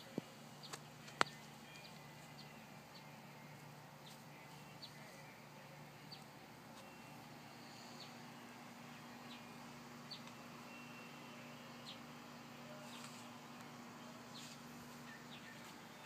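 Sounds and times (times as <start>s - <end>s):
steady low hum: 0.0s - 16.0s
faint bird chirps: 6.0s - 16.0s.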